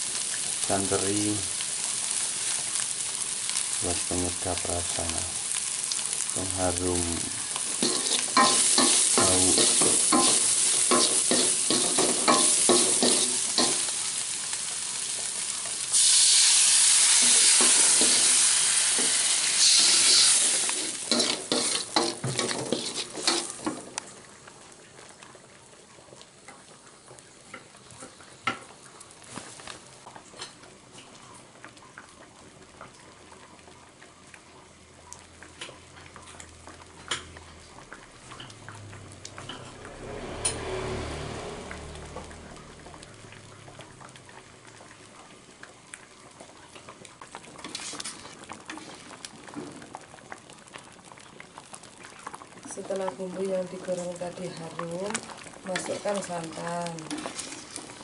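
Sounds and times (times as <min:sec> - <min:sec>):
liquid hissing in hot oil: 0:00.0 - 0:24.2, 0:47.1 - 0:58.0
food sizzling in oil: 0:00.0 - 0:58.0
wooden spatula scraping a wok: 0:07.7 - 0:13.9, 0:17.1 - 0:23.8, 0:47.6 - 0:49.0, 0:55.7 - 0:58.0.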